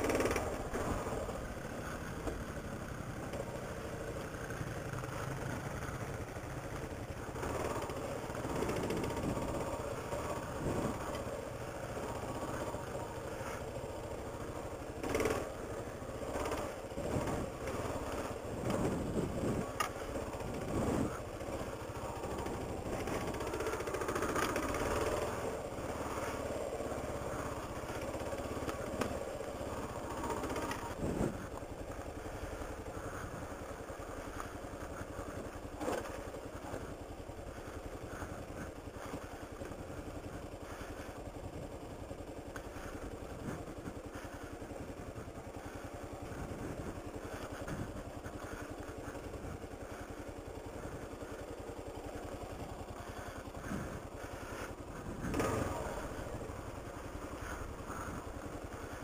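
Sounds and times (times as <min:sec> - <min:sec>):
motorcycle knocks and rattles: 0:00.0 - 0:01.3
motorcycle engine running: 0:00.0 - 0:59.0.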